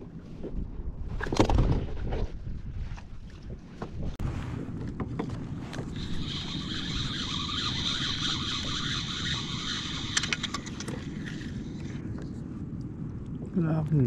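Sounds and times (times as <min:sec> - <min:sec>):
wind on microphone: 0:00.0 - 0:14.0
reel clicks: 0:05.8 - 0:12.0
fishing reel whirring: 0:05.9 - 0:12.0.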